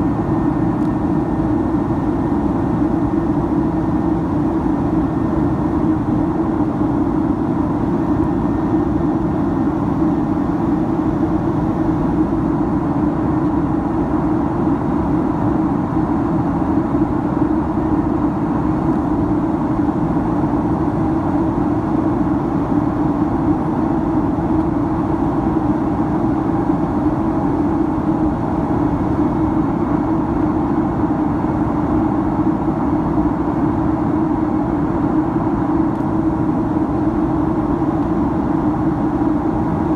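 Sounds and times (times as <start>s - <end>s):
jet engine cabin drone: 0.0s - 39.9s.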